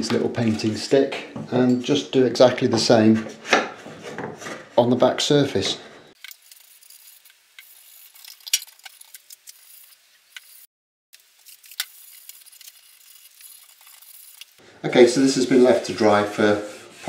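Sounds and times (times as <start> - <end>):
tissue wiping across wood: 15.0 - 17.0.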